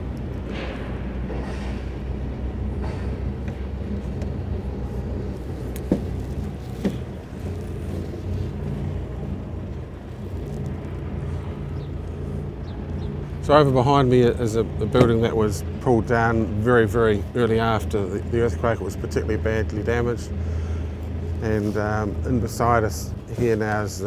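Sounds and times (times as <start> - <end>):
vehicle engine and road noise: 0.0 - 24.0.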